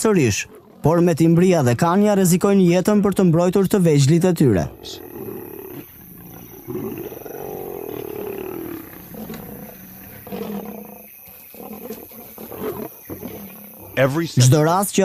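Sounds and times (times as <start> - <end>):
lions growling and snarling: 0.0 - 1.8, 4.5 - 14.7.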